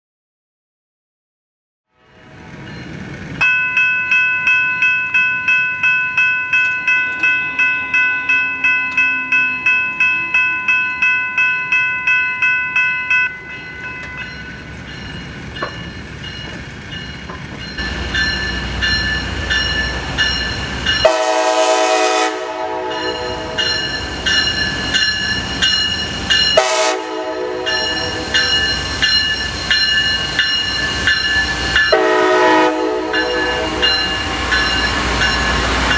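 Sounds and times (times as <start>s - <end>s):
railroad crossing bell: 2.0s - 35.9s
train rumbling: 2.0s - 35.9s
train horn blasts: 21.0s - 23.8s, 26.5s - 28.6s, 31.9s - 34.1s.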